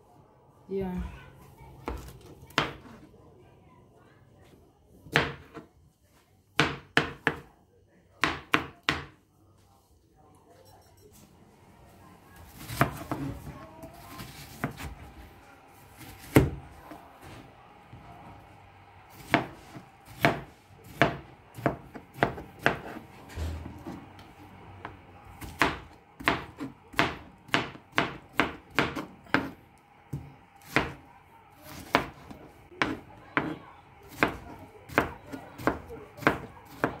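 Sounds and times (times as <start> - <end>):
knife chopping on cutting board: 19.1 - 24.0, 25.4 - 31.0, 31.7 - 33.5, 34.1 - 37.0.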